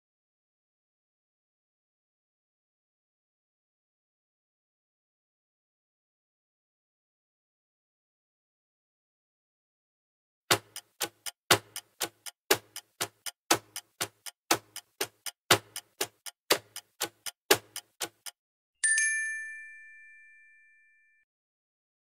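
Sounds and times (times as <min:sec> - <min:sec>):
clock ticking: 0:10.5 - 0:18.4
bright bell ding: 0:18.8 - 0:21.2.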